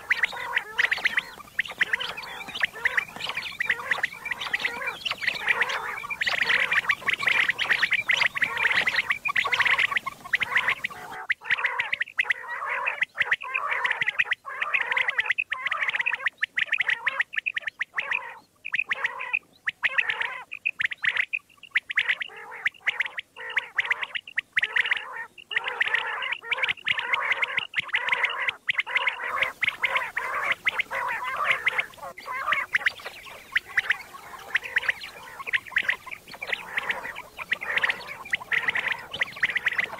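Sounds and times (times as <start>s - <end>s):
background hiss: 0.0s - 11.2s, 29.3s - 39.9s
quail calling: 0.0s - 39.9s.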